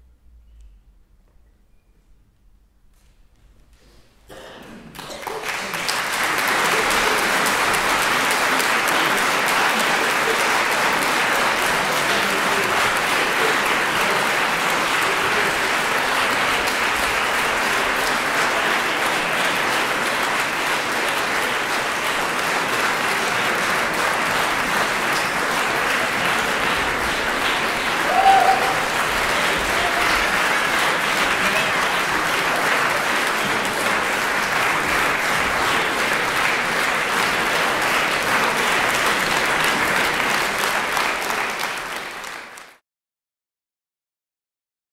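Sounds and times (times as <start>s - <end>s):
audience applauding: 4.9s - 42.8s
person shouting: 28.0s - 28.9s.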